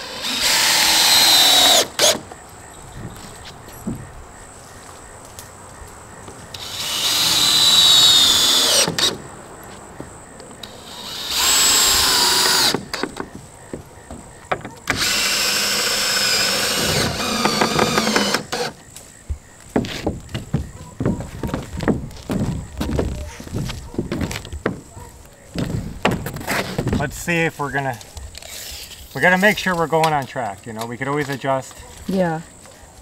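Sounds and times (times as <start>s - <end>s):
cordless drill driving screws: 0.0s - 2.2s, 6.6s - 9.2s, 10.7s - 13.1s, 14.8s - 18.7s.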